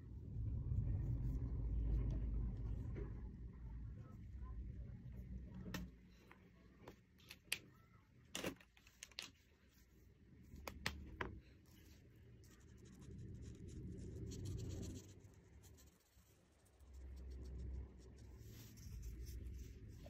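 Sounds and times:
marker rubbing across paper: 0:11.8 - 0:20.0.

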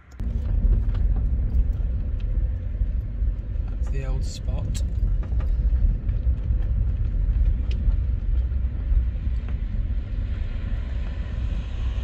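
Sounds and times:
car tyres and engine rumble: 0:00.0 - 0:12.0
light ticks: 0:06.2 - 0:08.5.

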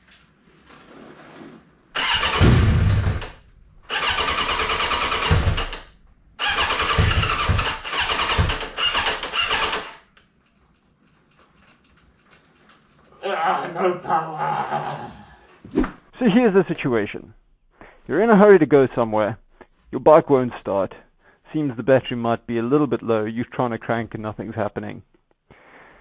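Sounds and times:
motorcycle starter cranking: 0:02.0 - 0:10.1.

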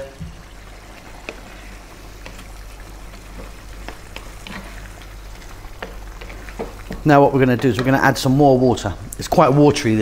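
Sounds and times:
curry simmering: 0:00.0 - 0:10.0
spatula tapping and scraping pan: 0:01.2 - 0:08.2.

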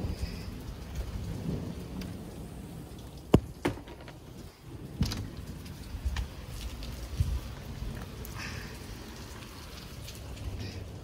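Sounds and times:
steady rain: 0:00.0 - 0:11.0
glass door and latch knocking: 0:03.3 - 0:04.2.

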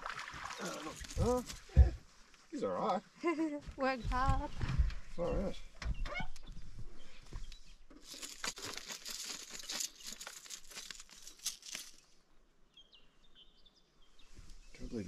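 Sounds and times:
fish thrashing in wet net: 0:00.0 - 0:01.7.

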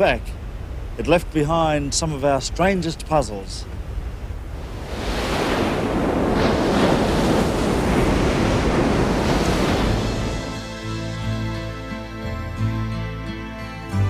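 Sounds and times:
low wind rumble: 0:00.0 - 0:12.7
surf breaking over rocks: 0:01.0 - 0:10.8.

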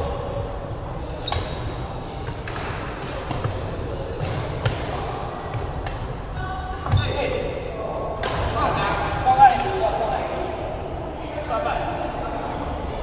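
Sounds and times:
rackets hitting shuttlecock: 0:01.2 - 0:05.0.

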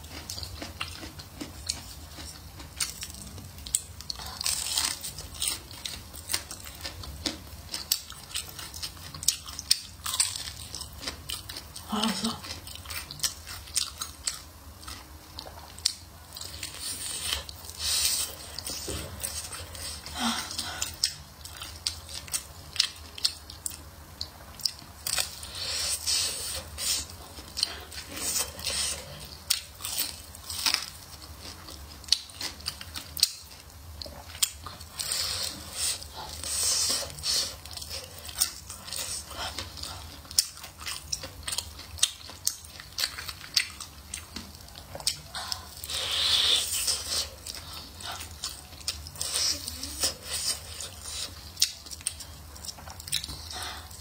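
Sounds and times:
crunching crispy fried chicken: 0:00.0 - 0:20.0.

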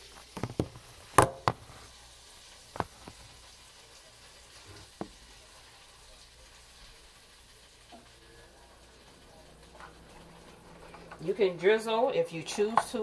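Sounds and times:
faint steady hiss: 0:00.0 - 0:13.0.

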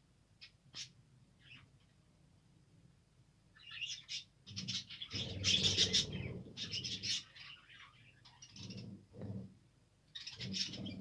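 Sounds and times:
budgerigars chattering and chirping: 0:03.6 - 0:09.0, 0:10.2 - 0:11.0.

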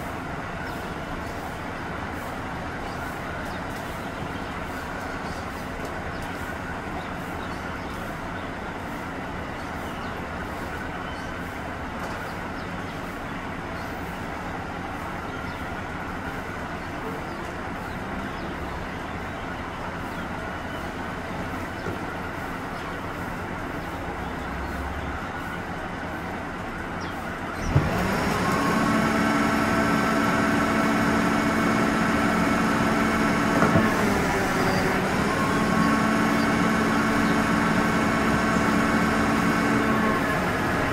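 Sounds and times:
truck diesel engine running: 0:00.0 - 0:40.9
hydraulic packer whine: 0:27.5 - 0:40.9.

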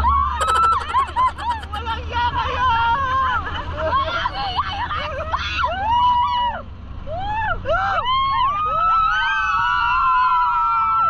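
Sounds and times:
dune buggy low rumble: 0:00.0 - 0:11.0
passengers shrieking and whooping: 0:00.0 - 0:11.0
wind: 0:00.0 - 0:11.0.

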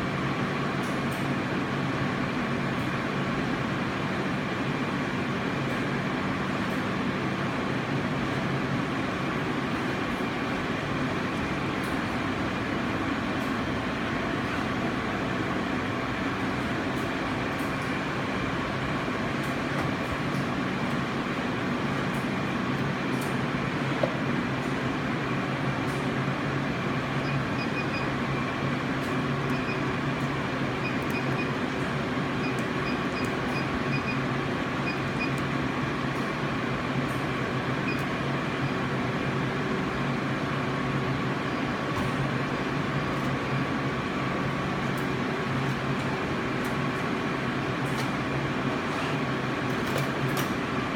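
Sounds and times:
machine hum with low tones: 0:00.0 - 0:50.9.

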